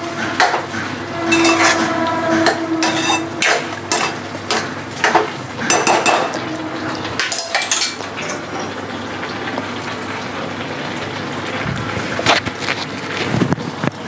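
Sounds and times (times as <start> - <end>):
spoon scraping a metal pan: 0.0 - 8.3
frying hiss: 2.6 - 14.0.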